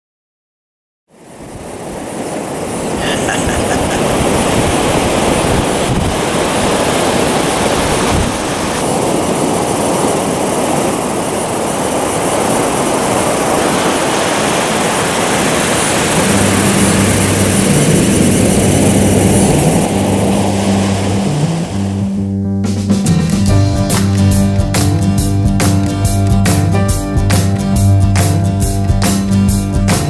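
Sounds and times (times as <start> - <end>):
breaking surf: 1.2 - 22.2
wind buffeting microphone: 1.2 - 22.2
music with low bass: 20.6 - 30.0.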